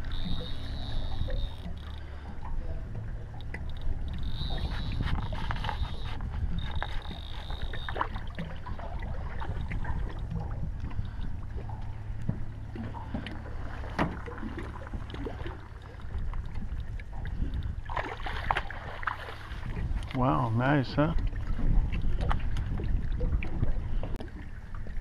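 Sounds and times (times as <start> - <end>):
fish splashing: 0.0 - 11.8, 17.8 - 19.9
water lapping against boat hull: 0.0 - 25.0
wind rumble on microphone: 0.0 - 25.0.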